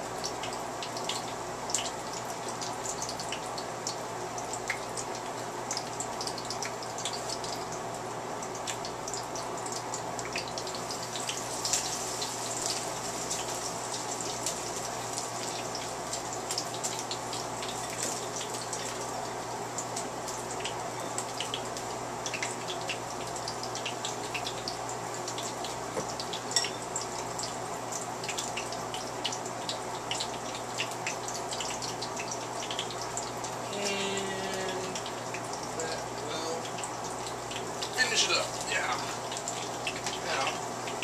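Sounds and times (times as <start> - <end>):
meat sizzling in hot grease: 0.0 - 41.0.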